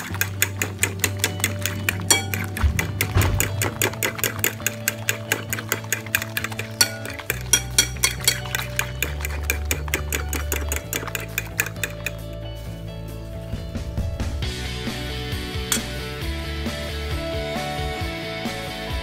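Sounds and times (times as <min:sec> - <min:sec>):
metal whisk clicking in bowl: 0:00.0 - 0:12.3
background music with bass line: 0:00.0 - 0:19.0.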